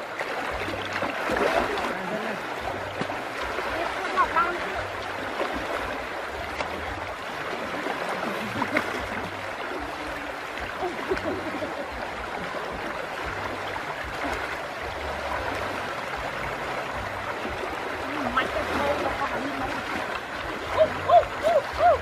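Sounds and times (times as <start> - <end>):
river water rushing over stones: 0.0 - 22.0.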